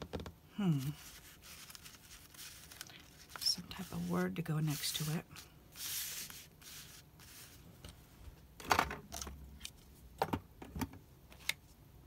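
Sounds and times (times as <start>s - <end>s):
paper rustling: 0.7s - 7.6s.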